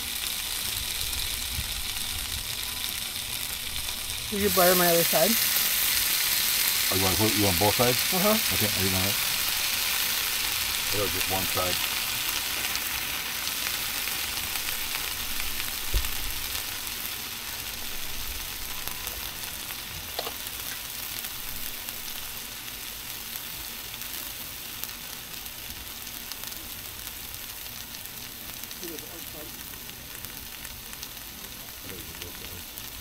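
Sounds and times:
bread sizzling on griddle: 0.0 - 33.0.

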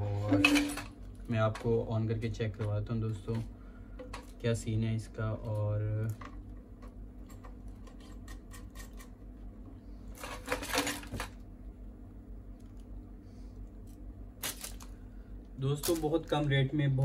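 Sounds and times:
plastic bags crinkling: 13.8 - 15.0, 15.6 - 16.6.

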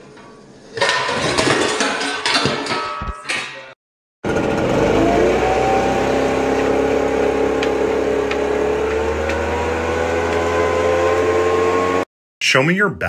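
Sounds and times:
leaf blower running: 4.2 - 12.1.

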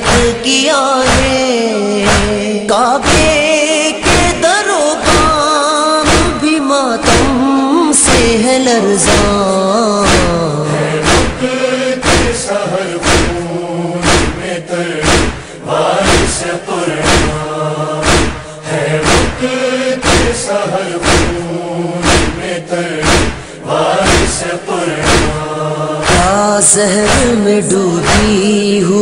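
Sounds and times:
voices chanting a lament: 0.0 - 29.0
thumping chest-beating: 1.1 - 1.4, 2.1 - 2.4, 3.0 - 3.4, 6.0 - 6.4, 7.0 - 7.4, 9.1 - 9.4, 10.0 - 10.4, 11.0 - 12.4, 13.0 - 20.4, 21.0 - 26.4.

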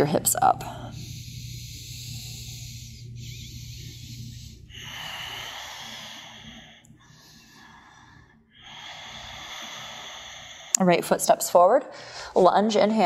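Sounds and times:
person breathing through the nose: 0.9 - 10.8.

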